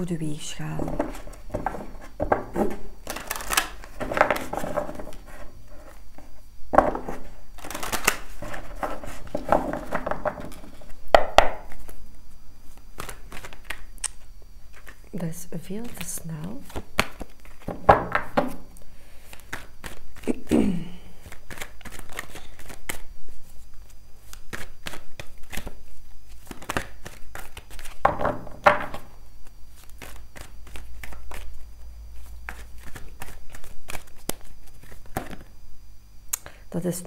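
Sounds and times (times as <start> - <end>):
cards being shuffled: 0.8 - 15.0, 15.8 - 20.5, 21.1 - 35.6.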